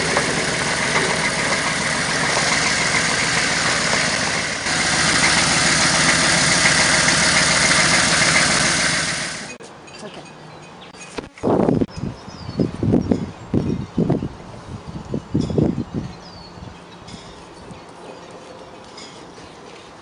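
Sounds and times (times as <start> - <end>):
car engine passing: 0.0 - 9.6.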